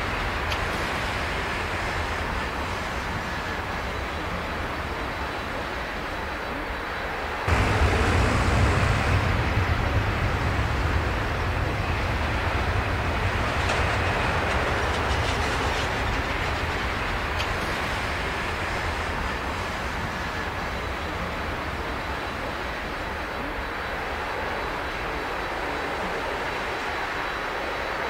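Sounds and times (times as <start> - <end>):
jet engines roaring: 7.4 - 26.8.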